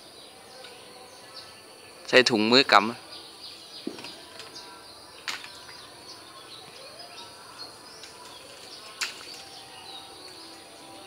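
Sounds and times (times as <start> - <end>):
outdoor background hiss: 0.0 - 11.0
high bird chirps: 3.1 - 11.0.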